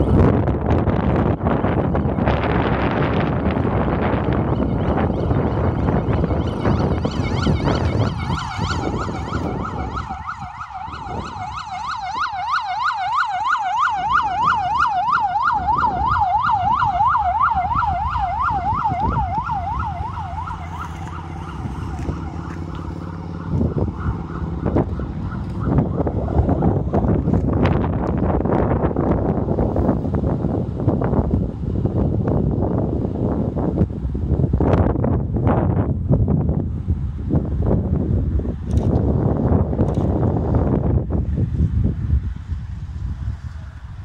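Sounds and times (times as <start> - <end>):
vehicle siren yelping: 0.0 - 29.2
engine hum: 0.0 - 44.0
wind noise on microphone: 0.0 - 44.0.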